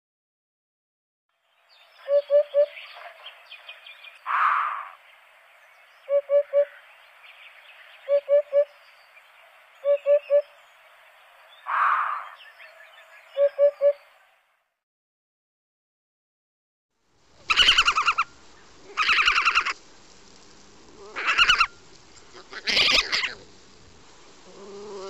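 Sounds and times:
hoopoe singing: 2.1s - 2.8s, 6.1s - 6.8s, 8.1s - 8.8s, 9.8s - 10.6s, 13.4s - 14.0s.

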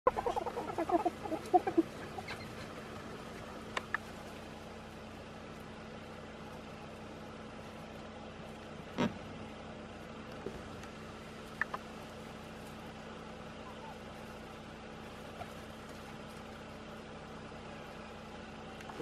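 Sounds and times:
short pitched animal calls: 0.1s - 2.9s, 8.9s - 9.3s, 13.5s - 14.2s
faint steady hum: 0.1s - 19.0s.

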